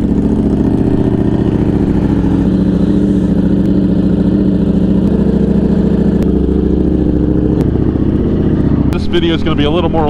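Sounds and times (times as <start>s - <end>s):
motorcycle engine idling: 0.0s - 10.0s.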